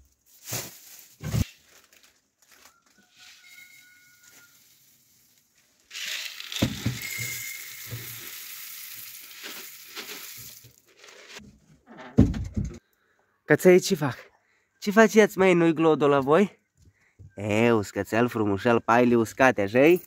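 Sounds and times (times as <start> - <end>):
dry grain feed pouring: 3.0 - 11.4.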